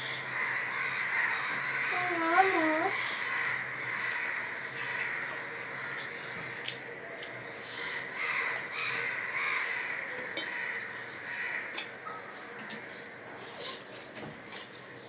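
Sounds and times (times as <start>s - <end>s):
crows cawing: 0.0s - 7.0s, 7.6s - 13.2s
wet chewing sounds: 5.1s - 7.6s, 11.1s - 15.0s.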